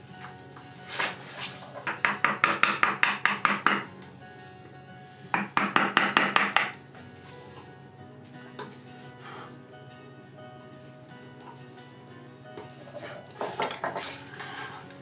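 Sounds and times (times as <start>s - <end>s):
quiet background music: 0.0s - 15.0s.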